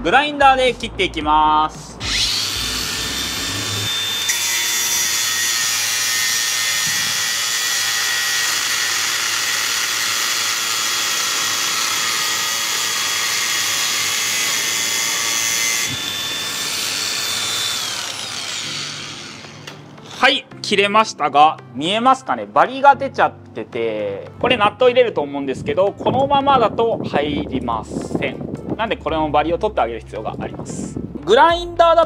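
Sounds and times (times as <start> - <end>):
disc grinding through metal: 2.0 - 20.2
angle grinder motor whine: 2.0 - 20.3.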